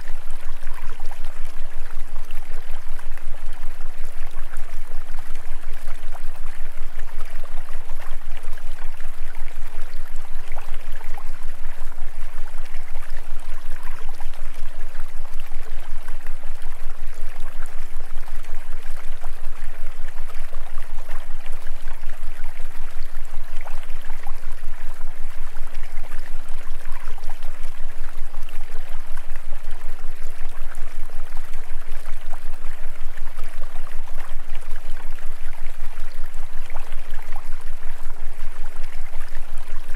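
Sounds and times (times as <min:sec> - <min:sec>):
steady pulsing hiss: 0:00.0 - 0:00.3
constant low hum: 0:00.0 - 0:39.9.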